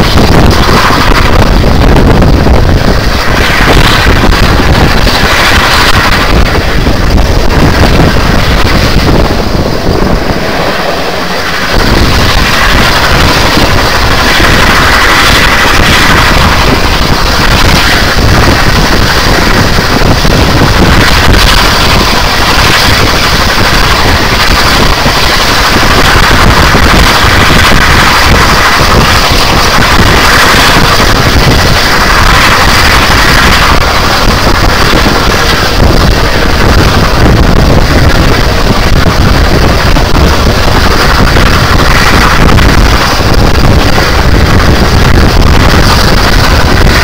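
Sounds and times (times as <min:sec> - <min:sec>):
train carriages running on track: 0:00.0 - 0:47.0
wind buffeting microphone: 0:00.0 - 0:47.0.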